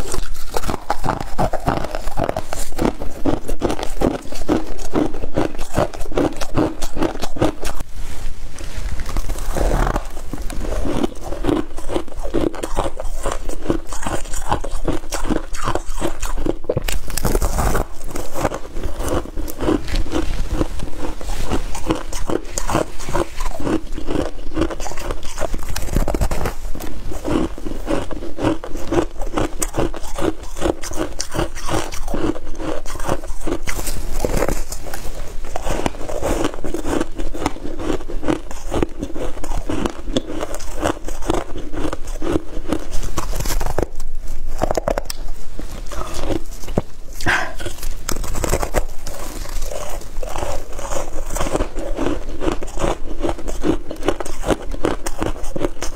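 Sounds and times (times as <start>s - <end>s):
chewing crunchy frost: 0.0s - 7.9s, 8.6s - 55.9s.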